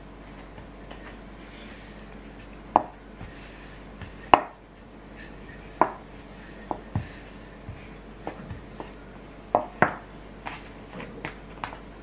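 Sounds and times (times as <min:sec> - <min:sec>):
dough rubbing on table: 0:00.3 - 0:09.0
rolling pin knocking on wood: 0:02.7 - 0:03.4, 0:04.0 - 0:04.6, 0:05.8 - 0:06.1, 0:06.7 - 0:10.0.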